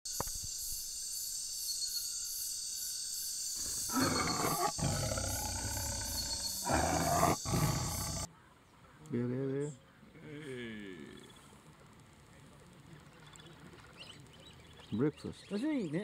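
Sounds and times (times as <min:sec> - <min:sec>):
tiger roaring: 0:03.6 - 0:08.3.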